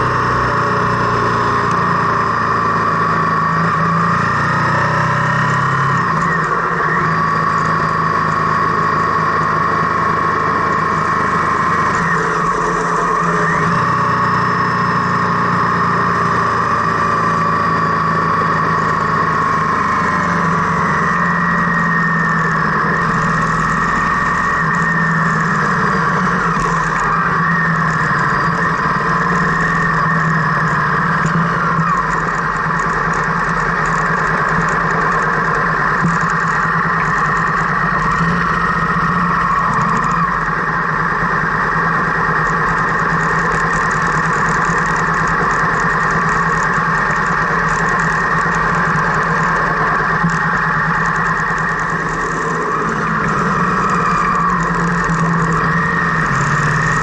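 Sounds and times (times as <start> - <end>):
car engine and road noise: 0.0 - 57.0.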